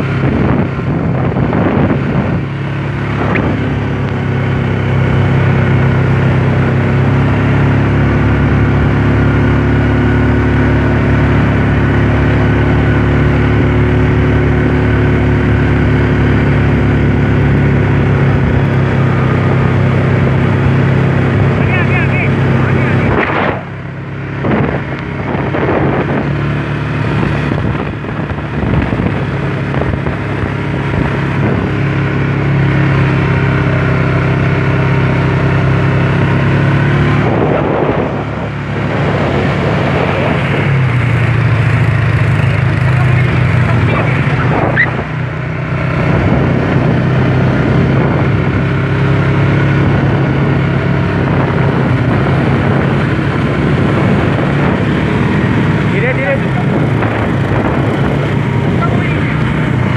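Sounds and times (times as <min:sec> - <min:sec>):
quad bike engine running: 0:00.0 - 0:59.9.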